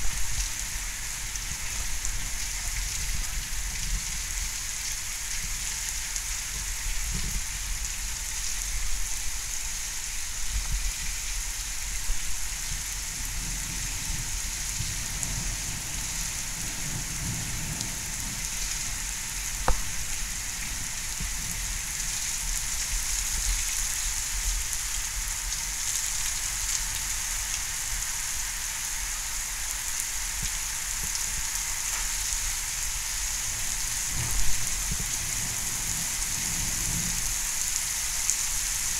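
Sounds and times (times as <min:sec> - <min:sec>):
heavy rain pouring: 0:00.0 - 0:38.9
sharp tap: 0:19.6 - 0:20.0.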